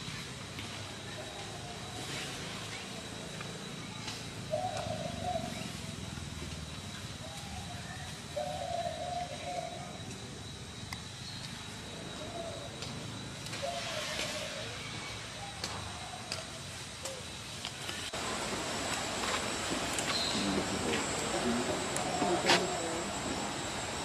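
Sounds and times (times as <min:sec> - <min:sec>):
low cooing calls: 0:04.4 - 0:05.9, 0:07.2 - 0:10.1, 0:11.9 - 0:12.9, 0:13.5 - 0:17.3, 0:20.1 - 0:24.0.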